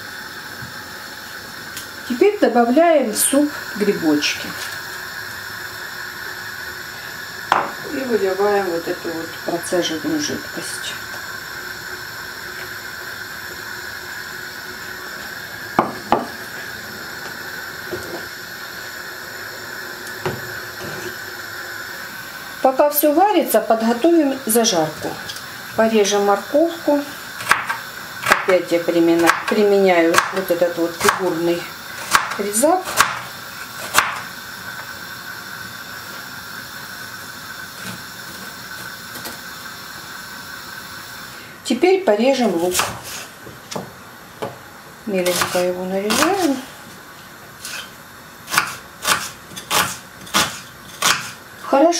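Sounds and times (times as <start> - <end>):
soup simmering hiss: 0.0 - 51.9
knife cutting on wooden board: 47.6 - 47.9, 48.5 - 51.4.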